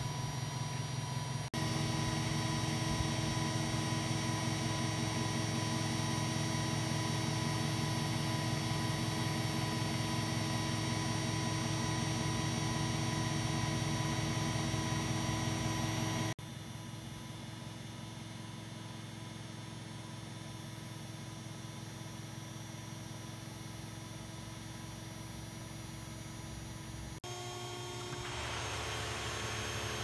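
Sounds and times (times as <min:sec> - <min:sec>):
electric motor whining hum: 0:00.0 - 0:16.3, 0:27.2 - 0:30.0.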